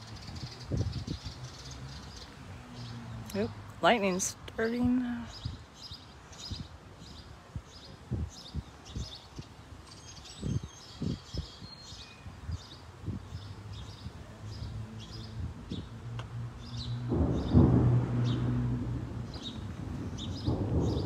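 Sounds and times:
bird chirping: 5.2 - 16.0, 16.6 - 21.0
low rumble: 15.3 - 21.0
low thumps: 16.1 - 21.0.

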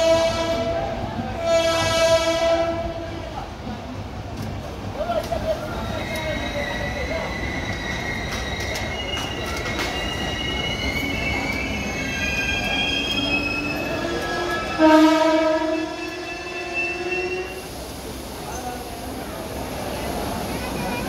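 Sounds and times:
train horn: 0.0 - 3.2, 14.4 - 17.6
train wheels squealing on rails: 5.3 - 21.0.

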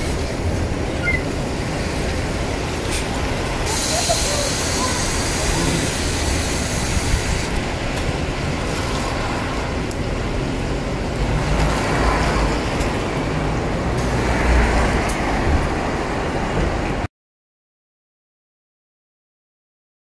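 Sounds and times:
bus engine idling: 0.0 - 11.6
traffic hiss on wet street: 0.0 - 17.1.

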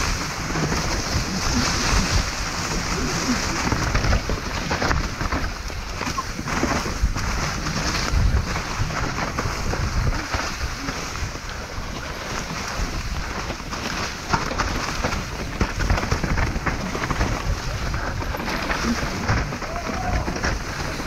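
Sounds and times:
bike rattling and knocking: 0.0 - 21.0
bike tyres rolling over rock: 0.0 - 21.0
wind on microphone: 0.0 - 21.0.

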